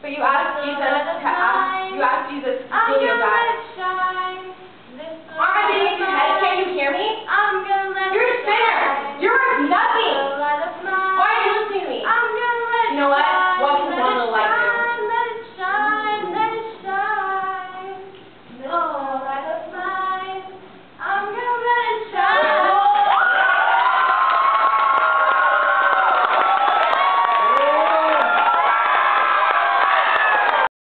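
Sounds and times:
girls singing unaccompanied: 0.0 - 23.2.

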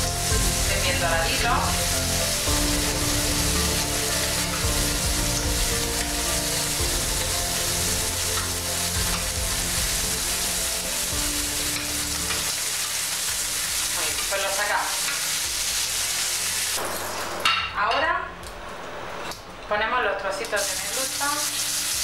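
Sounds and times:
prawns sizzling in hot oil: 0.0 - 17.6, 20.4 - 22.0
tongs turning food in a pan: 0.1 - 16.7.

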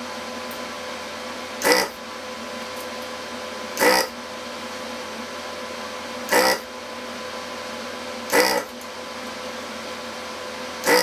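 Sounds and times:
steady background hum: 0.0 - 11.0
desoldering vacuum pump bursts: 1.6 - 2.0, 3.8 - 4.2, 6.3 - 6.7, 8.3 - 8.8, 10.8 - 11.0.

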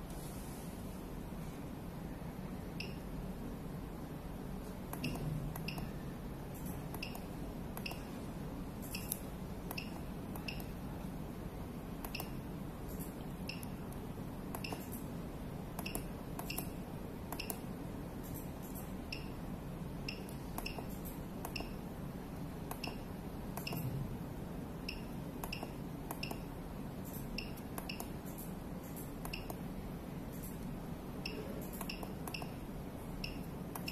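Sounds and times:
steady low hum: 0.0 - 33.9
sharp clicks: 12.0 - 15.0, 23.6 - 23.9, 31.3 - 32.6, 33.2 - 33.9.

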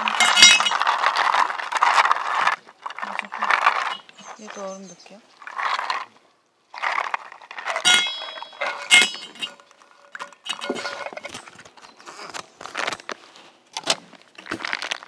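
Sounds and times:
ice cubes clinking in metal bowl: 0.0 - 4.8, 5.4 - 6.1, 6.7 - 11.5
plastic bag rustling: 0.0 - 15.0
metal bowls ringing: 7.8 - 9.6.

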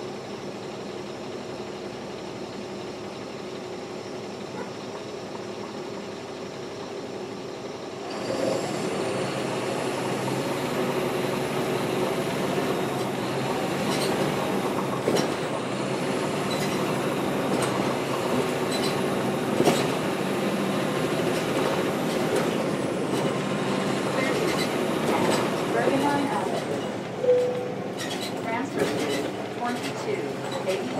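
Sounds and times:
diesel bus engine pulling away: 0.0 - 30.9.

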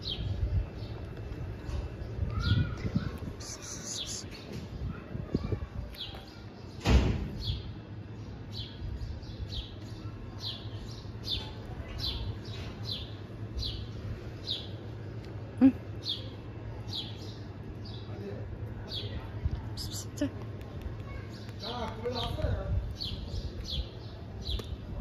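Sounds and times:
loud thump: 6.8 - 7.4.

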